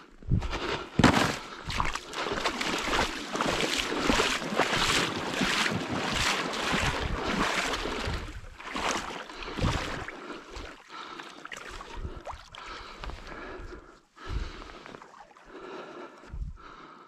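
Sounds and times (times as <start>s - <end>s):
footsteps crunching in snow: 0.5s - 5.6s.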